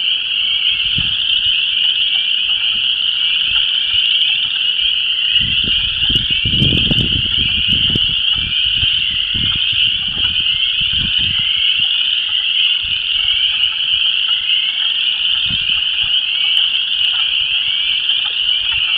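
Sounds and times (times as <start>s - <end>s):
frog chorus peeps and trills: 0.0s - 18.9s
wind buffeting microphone: 0.7s - 1.4s, 5.3s - 12.1s, 12.7s - 13.5s, 15.3s - 16.1s.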